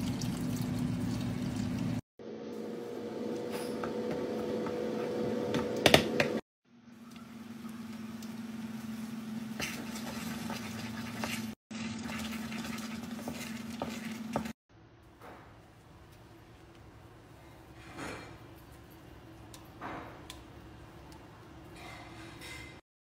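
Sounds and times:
wooden spoon scraping a pot: 9.6 - 14.6.

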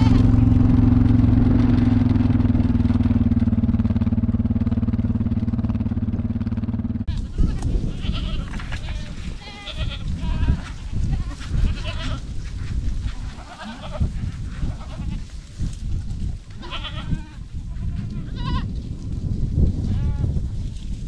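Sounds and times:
goats bleating: 0.0 - 0.6, 7.1 - 12.4, 13.0 - 15.3, 16.5 - 18.7
steady low rumble: 0.0 - 21.0.

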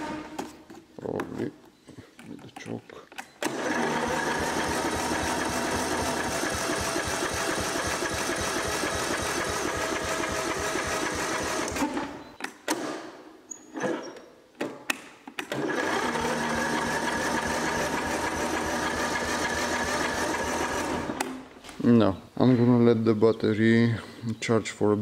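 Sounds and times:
electric starter cranking engine: 3.4 - 12.2, 15.5 - 21.4.

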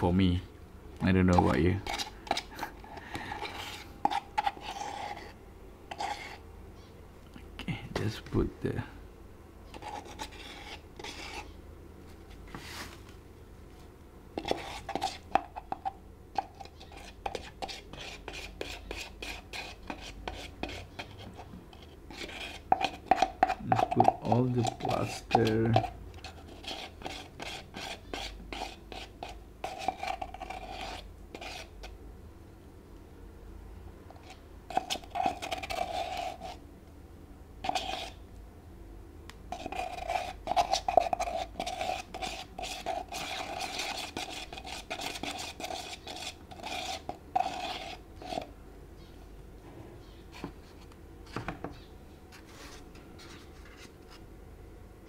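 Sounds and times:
metal spoon scraping plastic cup: 1.3 - 2.5, 3.4 - 6.4, 9.7 - 11.5, 14.4 - 31.7, 34.1 - 36.6, 37.6 - 38.2, 39.5 - 48.5.

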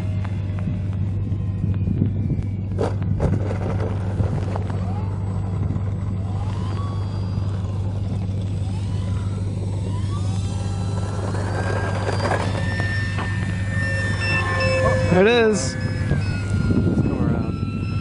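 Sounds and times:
model plane motor whining: 0.0 - 18.0
steady low rumble: 0.0 - 18.0.

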